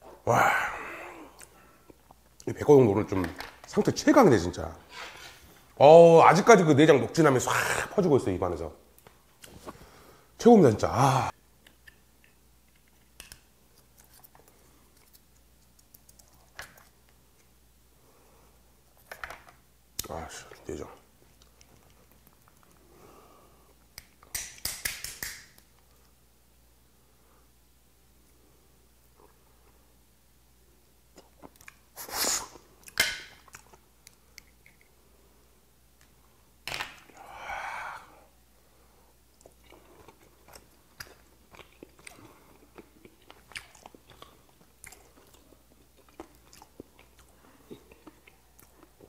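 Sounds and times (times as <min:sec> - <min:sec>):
eating sounds: 0:39.4 - 0:49.0.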